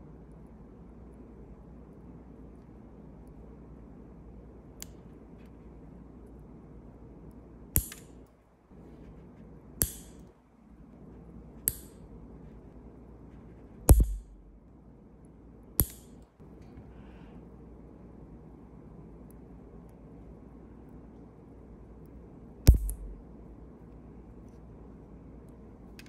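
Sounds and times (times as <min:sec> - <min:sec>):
low thump: 0:22.7 - 0:23.2
sharp clicks: 0:22.7 - 0:23.2.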